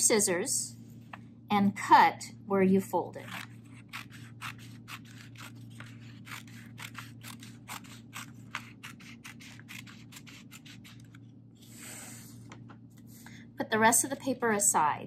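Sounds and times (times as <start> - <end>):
scissors cutting paper: 3.1 - 11.2.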